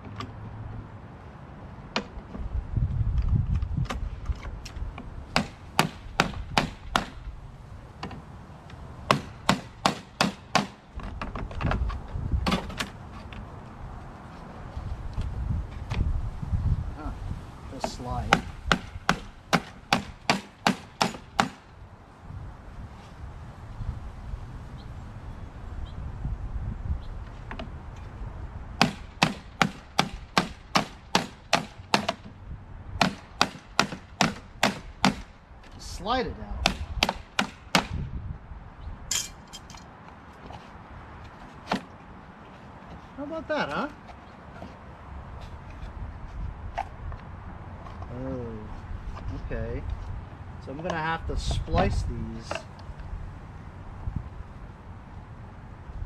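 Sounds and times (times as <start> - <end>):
sharp knocks on a bolt: 5.4 - 7.2, 33.0 - 35.3, 36.6 - 38.0
hammer striking: 18.3 - 21.6.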